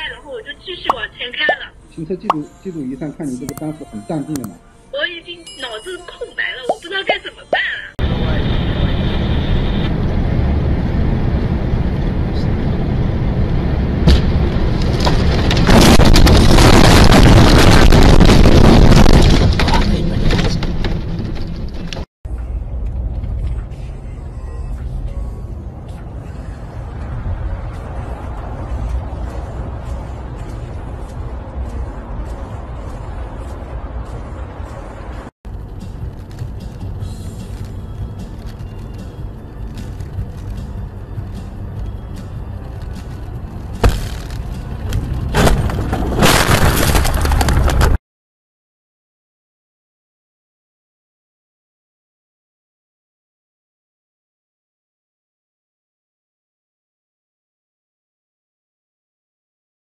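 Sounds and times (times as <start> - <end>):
car rumbling on road: 8.0 - 46.4
vehicle crash crunching and scraping: 13.6 - 22.1, 42.7 - 48.0
heavy impact: 43.8 - 47.9
debris clattering: 45.4 - 48.0.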